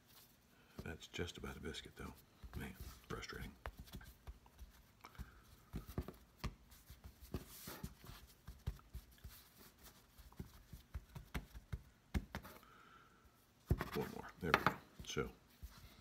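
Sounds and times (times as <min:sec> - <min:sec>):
hands patting dough: 0:00.1 - 0:12.6.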